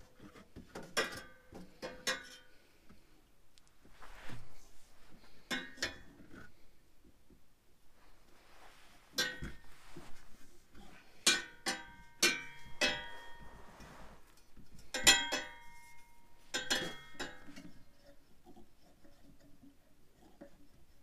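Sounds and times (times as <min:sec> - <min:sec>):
exhaust pipe clinking and ringing: 0:11.2 - 0:13.6, 0:14.7 - 0:17.7.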